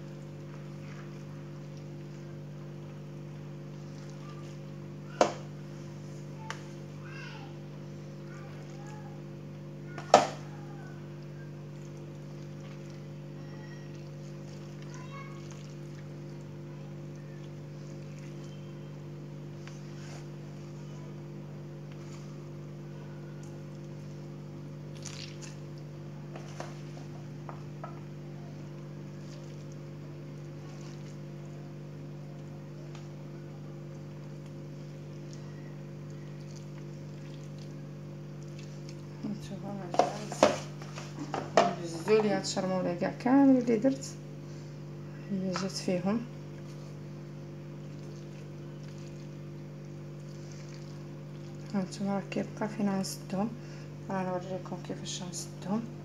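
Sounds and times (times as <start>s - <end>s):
wet squishes: 0.0s - 5.6s, 8.2s - 20.9s, 23.3s - 27.0s, 28.5s - 39.4s, 45.5s - 53.3s.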